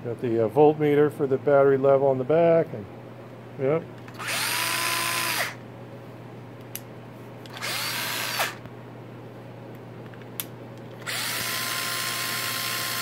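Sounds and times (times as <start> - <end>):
cordless drill motor whine: 4.1 - 5.6, 7.5 - 8.6, 11.0 - 13.0.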